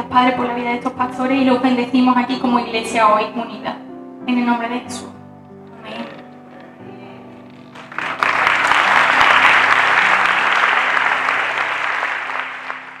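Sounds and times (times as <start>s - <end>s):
soft instrumental music: 0.0s - 13.0s
congregation applauding: 7.6s - 13.0s.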